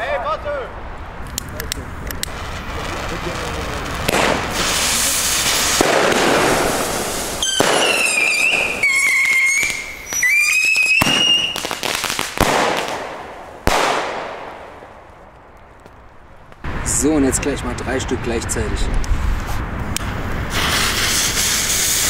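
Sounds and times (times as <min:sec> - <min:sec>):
firework bangs: 0:00.7 - 0:16.9, 0:20.0 - 0:22.0
firework tubes hissing: 0:01.2 - 0:14.7, 0:19.1 - 0:22.0
shrill firework whistles: 0:04.1 - 0:12.3, 0:20.5 - 0:22.0.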